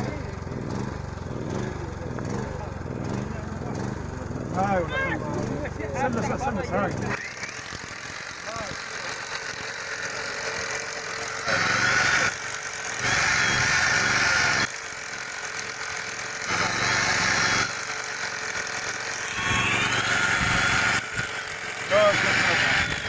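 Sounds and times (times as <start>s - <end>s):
electric drill boring into concrete: 7.1s - 23.0s.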